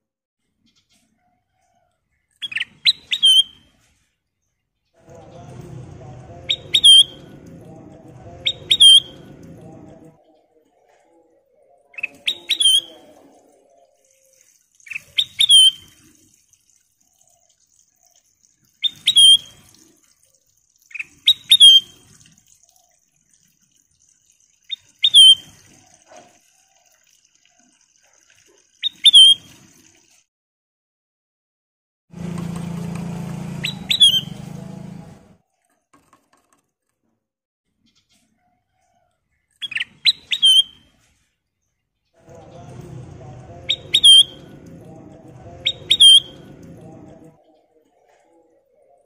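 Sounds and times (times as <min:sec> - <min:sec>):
bird chirping calls: 0:02.4 - 0:03.6, 0:06.3 - 0:10.5, 0:11.6 - 0:15.9, 0:18.8 - 0:19.5, 0:20.9 - 0:22.0, 0:24.7 - 0:25.4, 0:28.8 - 0:29.5, 0:33.6 - 0:34.6, 0:39.6 - 0:40.9, 0:43.4 - 0:47.7.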